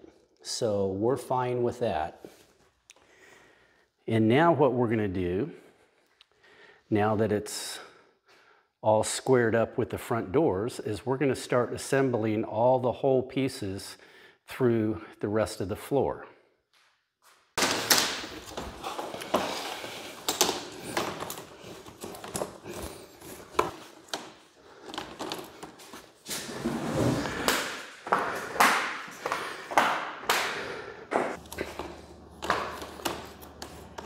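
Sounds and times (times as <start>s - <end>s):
plastic floor tiles snapping: 17.6s - 19.4s.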